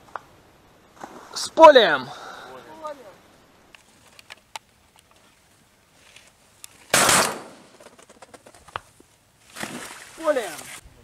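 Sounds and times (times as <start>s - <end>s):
shotgun blast: 6.9s - 7.7s.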